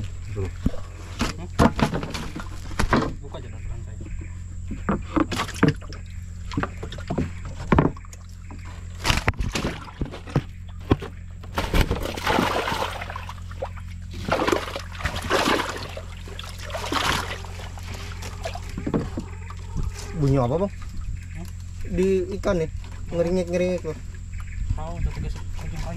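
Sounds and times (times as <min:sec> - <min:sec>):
wooden planks knocking: 0:00.6 - 0:03.2, 0:04.1 - 0:12.9, 0:16.8 - 0:20.2
fish splashing in water: 0:11.6 - 0:19.9.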